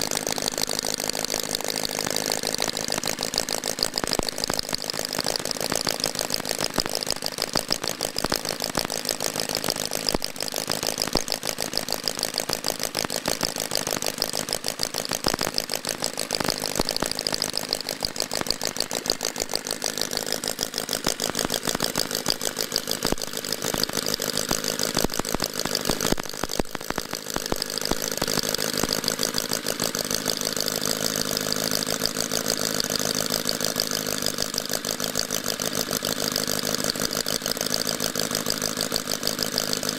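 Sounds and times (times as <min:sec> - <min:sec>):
model engine running: 0:00.0 - 0:39.9.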